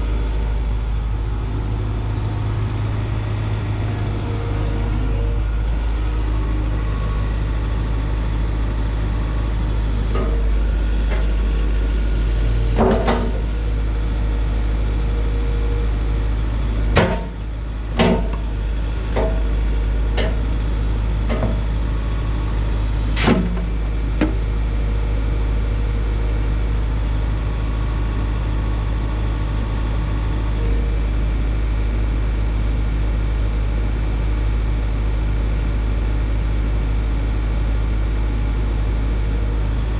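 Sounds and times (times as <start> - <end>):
excavator diesel engine running: 0.0 - 39.9
sharp knocks and clunks: 16.9 - 17.4, 18.0 - 18.4, 23.2 - 24.4.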